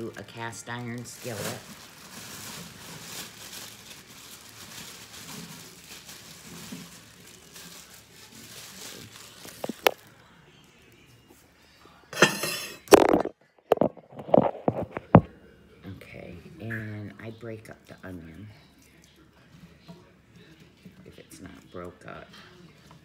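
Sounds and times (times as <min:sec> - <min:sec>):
dishes clinking: 0:12.2 - 0:14.0.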